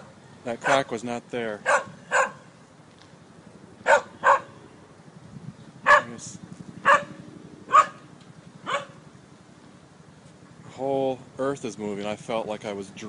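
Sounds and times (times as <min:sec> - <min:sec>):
dog barking: 0:00.6 - 0:00.9, 0:01.6 - 0:02.4, 0:03.8 - 0:04.6, 0:05.8 - 0:06.2, 0:06.8 - 0:08.0, 0:08.6 - 0:09.0.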